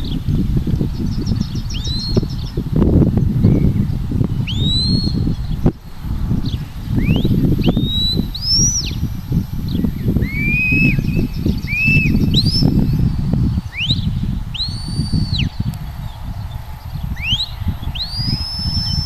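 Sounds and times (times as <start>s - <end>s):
wind rumble on microphone: 0.0s - 19.0s
whistle commands: 7.0s - 12.7s.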